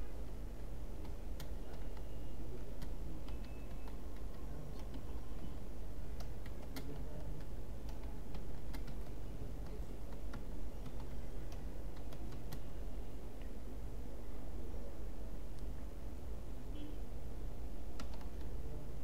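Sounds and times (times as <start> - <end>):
low background hum: 0.0 - 19.0
keyboard typing: 0.2 - 12.8, 17.9 - 18.6.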